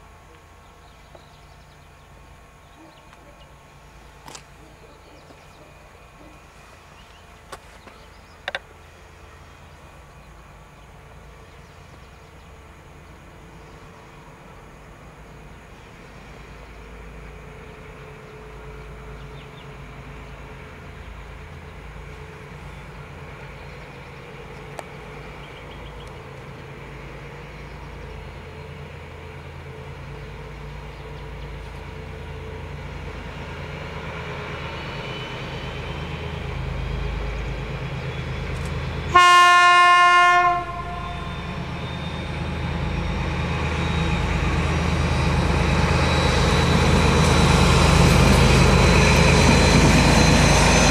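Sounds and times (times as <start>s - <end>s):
locomotive engine rumble: 0.0s - 50.9s
train wheel noise: 0.0s - 50.9s
train horn blast: 39.1s - 42.1s.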